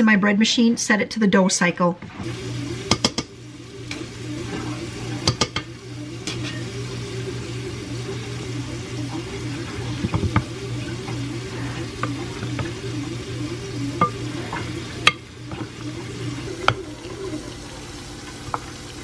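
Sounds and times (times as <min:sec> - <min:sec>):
bread machine motor whining: 0:02.1 - 0:19.0
utensils clicking against bowls: 0:02.9 - 0:03.3, 0:05.2 - 0:06.7.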